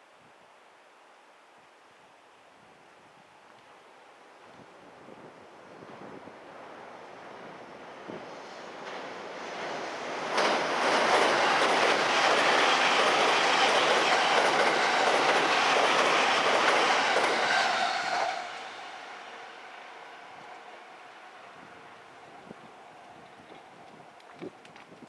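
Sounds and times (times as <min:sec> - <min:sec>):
train wheels clattering on rails: 0:08.7 - 0:18.4.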